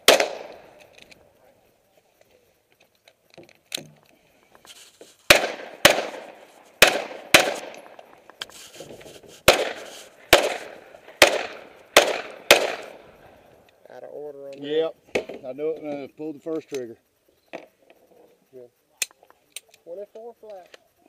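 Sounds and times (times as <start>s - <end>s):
pistol shots echoing: 0.0s - 0.9s, 5.3s - 8.1s, 9.5s - 13.0s.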